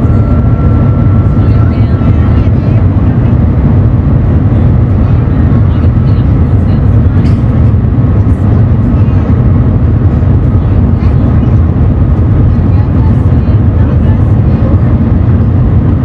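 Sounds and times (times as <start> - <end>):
train rumble inside cabin: 0.0 - 16.0.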